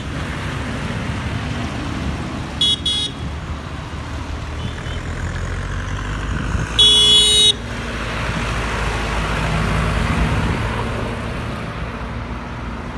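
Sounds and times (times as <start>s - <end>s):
tractor diesel engine passing: 0.0s - 12.9s
vehicle horn blast: 2.6s - 3.3s, 6.8s - 7.6s.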